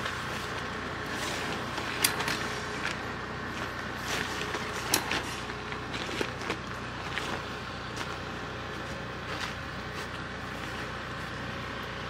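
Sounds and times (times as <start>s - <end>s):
tent fabric rustling: 0.0s - 8.2s
tent poles clicking and knocking: 0.0s - 8.2s
steady background hum: 0.0s - 12.0s.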